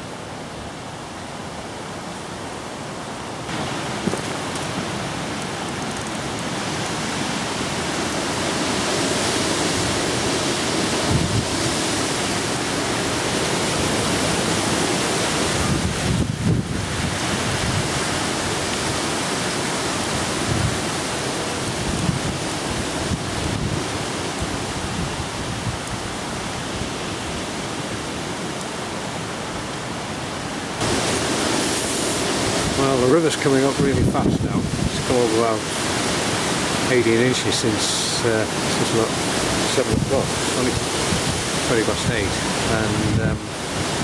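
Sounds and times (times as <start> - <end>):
strong gusting wind: 0.0 - 44.0
wind buffeting microphone: 3.5 - 28.1, 33.6 - 36.8, 38.4 - 44.0.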